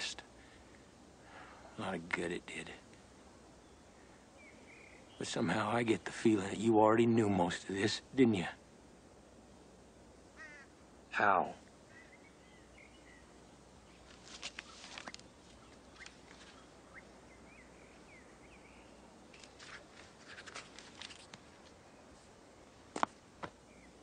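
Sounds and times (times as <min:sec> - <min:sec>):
faint scuffing and rustling: 0:13.9 - 0:16.7, 0:19.3 - 0:23.6.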